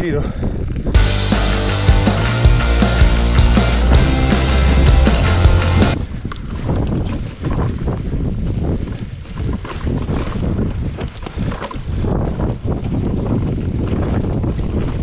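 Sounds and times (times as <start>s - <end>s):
wind buffeting microphone: 0.0s - 1.0s, 6.0s - 15.0s
bike rattling on rough trail: 6.1s - 15.0s.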